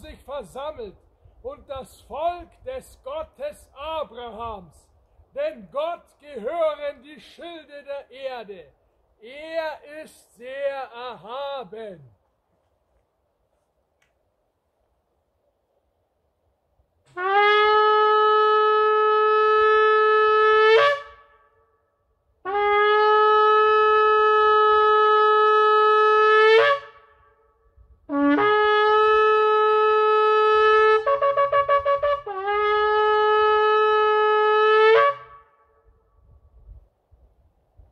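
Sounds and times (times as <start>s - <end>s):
ram's horn blasts: 17.1s - 21.6s, 28.1s - 35.9s.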